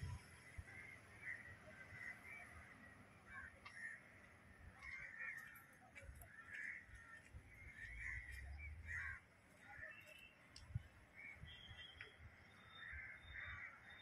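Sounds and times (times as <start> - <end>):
crows cawing: 0.7 - 4.2, 4.8 - 10.0, 12.8 - 13.9.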